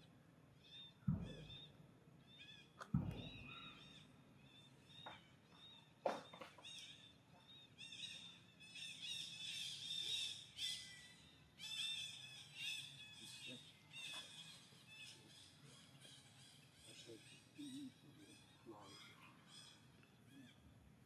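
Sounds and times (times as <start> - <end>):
dull low thump: 1.1 - 1.7, 2.9 - 3.6.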